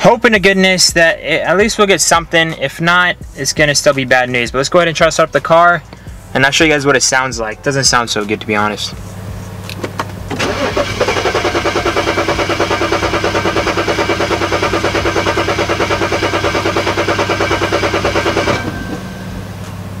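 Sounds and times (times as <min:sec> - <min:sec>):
car engine cranking by starter: 0:09.0 - 0:20.0.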